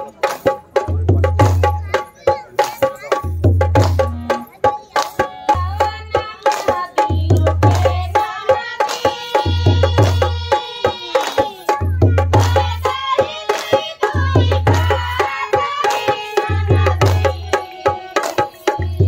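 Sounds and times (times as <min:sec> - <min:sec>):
group singing: 0:06.6 - 0:11.7, 0:12.4 - 0:19.0.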